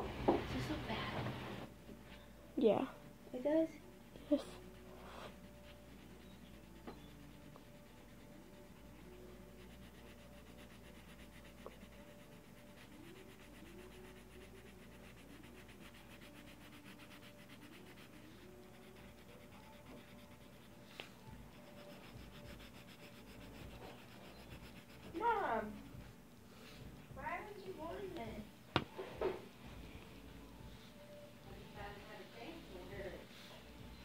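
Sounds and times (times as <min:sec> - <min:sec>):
pencil scratching on paper: 0:04.3 - 0:26.0.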